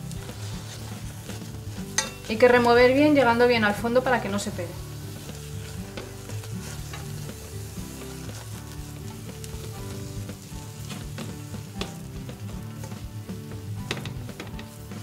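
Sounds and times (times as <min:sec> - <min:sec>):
paste sizzling in a pot: 0:00.0 - 0:15.0
soft background music: 0:00.0 - 0:15.0
spatula scraping pot bottom: 0:05.0 - 0:10.2.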